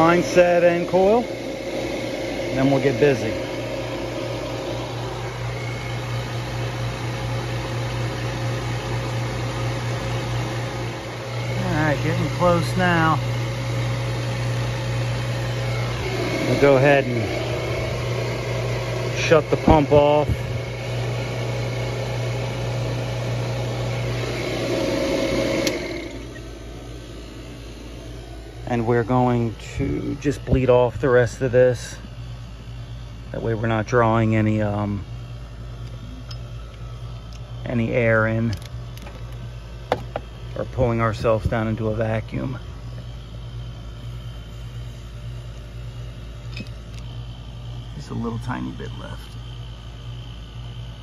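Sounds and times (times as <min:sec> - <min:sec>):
machine humming: 0:00.0 - 0:51.0.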